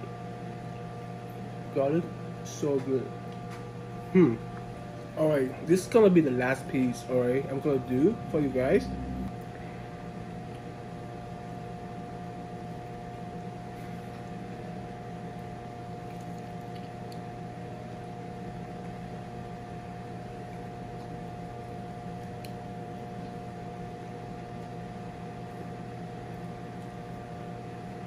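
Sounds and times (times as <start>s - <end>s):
appliance fan humming: 0.0s - 28.0s
mid-pitched whine: 3.8s - 15.9s.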